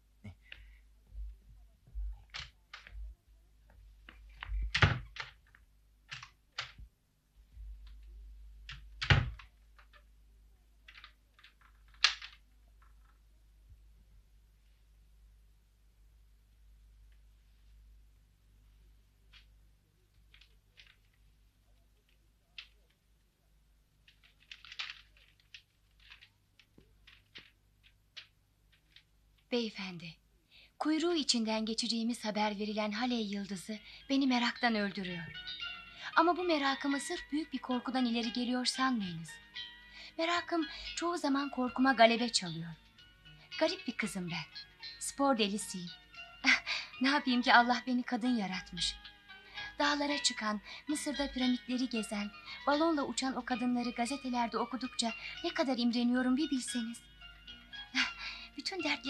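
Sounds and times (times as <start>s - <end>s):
wooden door knocks and clicks: 4.5s - 5.4s, 8.7s - 9.5s
door thuds: 9.0s - 9.4s
paper rustling: 10.9s - 13.2s, 19.3s - 23.1s, 24.0s - 29.5s.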